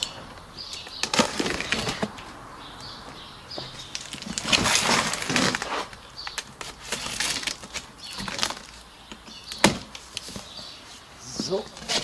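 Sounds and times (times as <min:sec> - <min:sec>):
cardboard and tape scraping rustle: 0:01.0 - 0:02.3, 0:03.7 - 0:08.8, 0:09.6 - 0:12.0.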